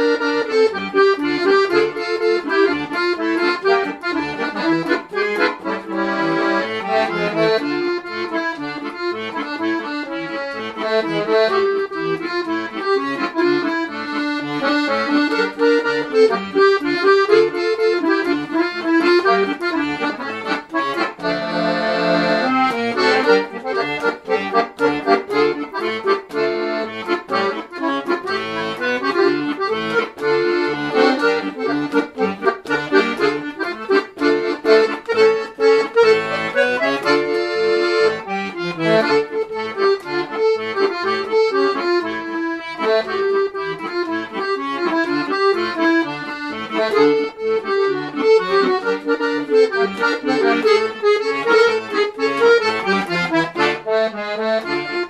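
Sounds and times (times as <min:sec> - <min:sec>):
accordion playing: 0:00.0 - 0:55.0.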